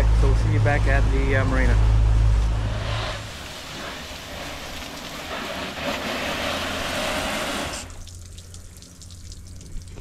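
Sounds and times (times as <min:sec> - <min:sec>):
hose spray hitting metal: 0:02.7 - 0:08.0
water dripping and trickling: 0:03.2 - 0:10.0.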